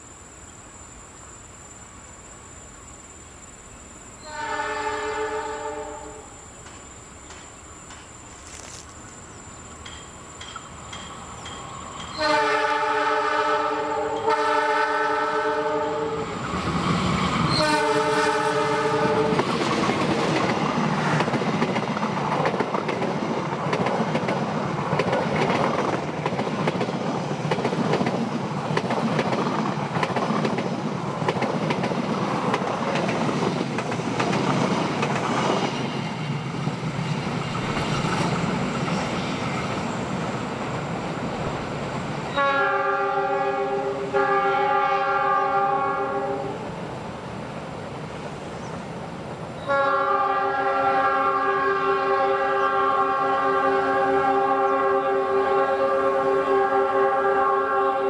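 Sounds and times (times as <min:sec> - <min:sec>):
train horn blasts: 0:04.2 - 0:06.4, 0:12.1 - 0:16.3, 0:17.5 - 0:19.5, 0:42.3 - 0:46.7, 0:49.6 - 0:58.0
train wheels clattering over rail joints: 0:06.6 - 0:08.8, 0:09.8 - 0:12.2, 0:19.3 - 0:40.3.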